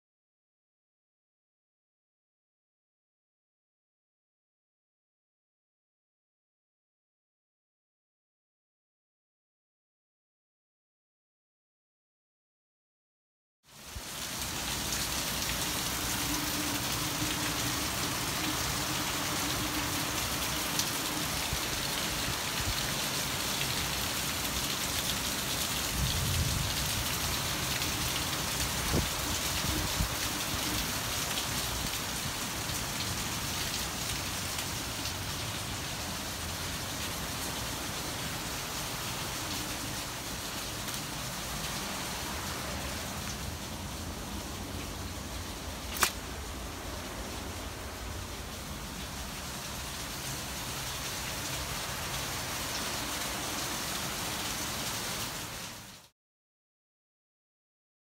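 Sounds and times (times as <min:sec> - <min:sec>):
steady rain hiss: 0:13.7 - 0:56.1.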